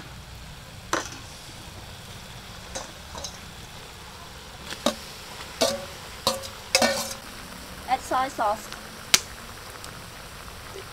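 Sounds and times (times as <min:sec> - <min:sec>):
faint sizzle of frying: 0:00.0 - 0:10.9
metal spatula scraping a wok: 0:04.7 - 0:07.3.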